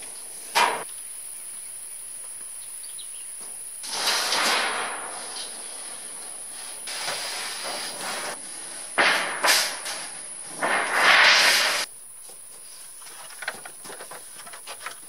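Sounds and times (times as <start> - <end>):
metal roofing sheet scraping: 3.8 - 11.9.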